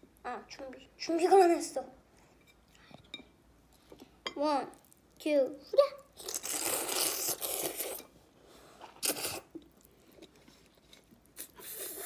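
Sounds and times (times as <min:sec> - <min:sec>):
child slurping noodles: 0:06.3 - 0:08.1, 0:08.8 - 0:09.6, 0:11.4 - 0:12.0.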